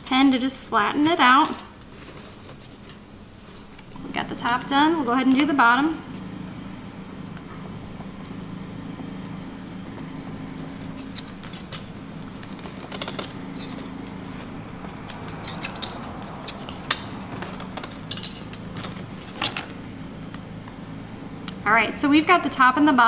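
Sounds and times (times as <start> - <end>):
aluminum sheet crinkling: 0.0 - 3.7
steady low hum: 0.0 - 23.0.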